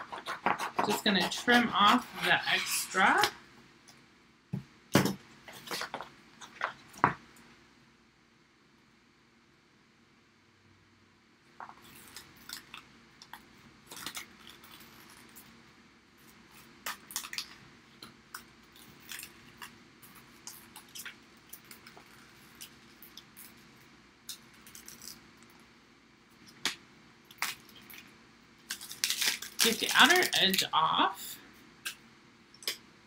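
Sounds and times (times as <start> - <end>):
plastic film crackling and rustling: 16.3 - 25.6, 27.3 - 30.8.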